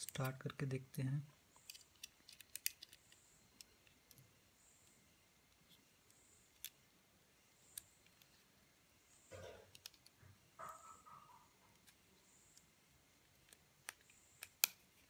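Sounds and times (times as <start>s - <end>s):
plastic handling clicks: 1.6s - 3.0s.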